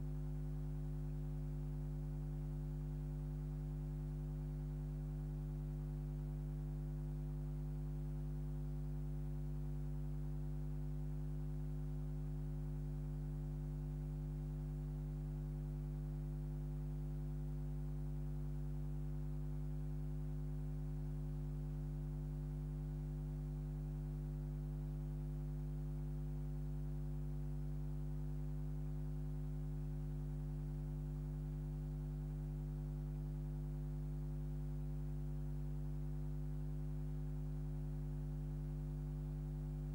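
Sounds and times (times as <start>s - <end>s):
electrical mains hum: 36.2s - 39.9s.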